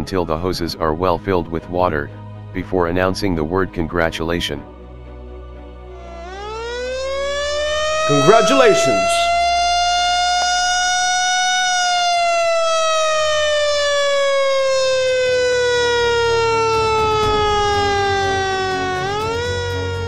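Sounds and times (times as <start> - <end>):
siren wailing: 5.9 - 20.0.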